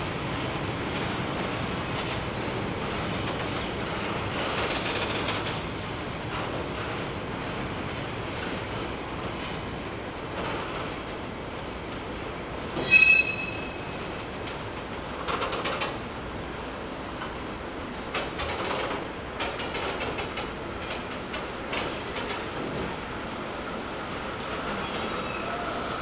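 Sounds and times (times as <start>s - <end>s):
high-pitched metal squeals: 4.6s - 6.0s, 12.8s - 14.0s, 22.8s - 26.0s.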